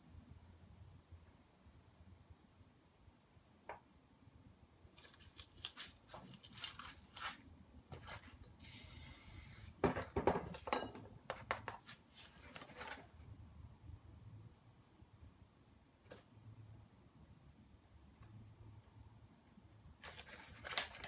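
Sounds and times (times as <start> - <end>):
spray paint can hissing: 8.6 - 9.8.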